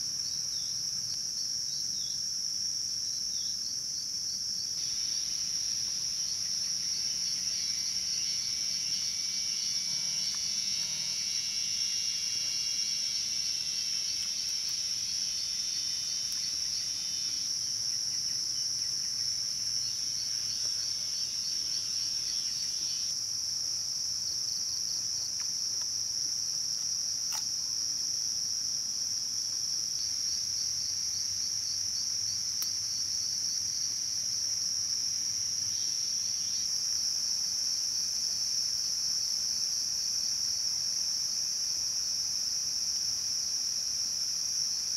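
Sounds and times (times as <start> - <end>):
lower pulsing insect call: 0.0 - 44.9
high-pitched insect trilling: 4.8 - 23.2
sharp click: 27.3 - 27.5.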